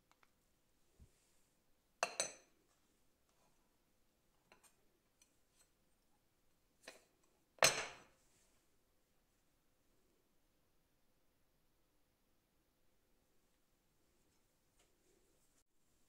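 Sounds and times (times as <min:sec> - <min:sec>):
plate and glass bowl clinking: 0:02.0 - 0:02.5, 0:07.6 - 0:08.1.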